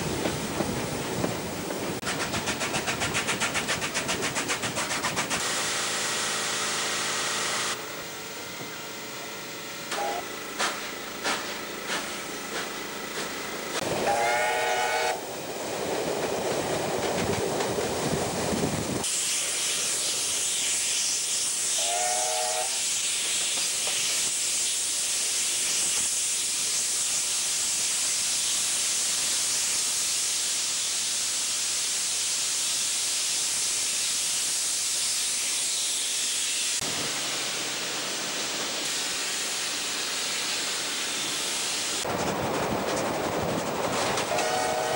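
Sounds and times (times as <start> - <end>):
rushing hiss of running train: 0.0 - 44.9
steam locomotive whistle: 9.9 - 10.3, 13.9 - 15.3, 21.7 - 22.9, 44.2 - 44.9.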